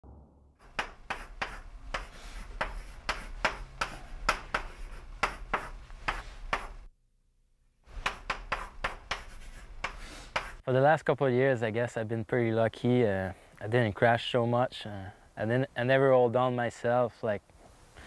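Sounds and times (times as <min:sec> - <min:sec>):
chalk scraping on chalkboard: 0:00.7 - 0:06.9, 0:07.9 - 0:10.6.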